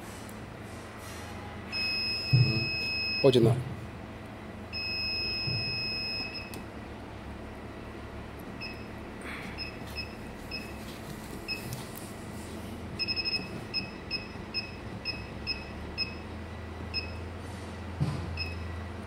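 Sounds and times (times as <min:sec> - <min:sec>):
short high beeps: 0:01.8 - 0:03.2, 0:04.8 - 0:06.6.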